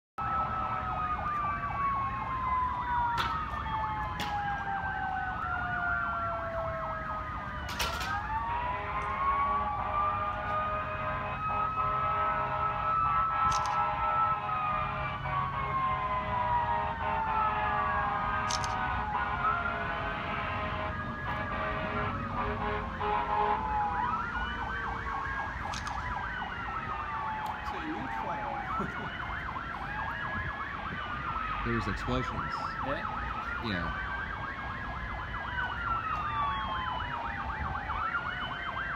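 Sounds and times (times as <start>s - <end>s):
emergency sirens wailing: 0.2s - 38.9s
sharp clicks: 13.5s - 13.9s, 25.6s - 26.2s.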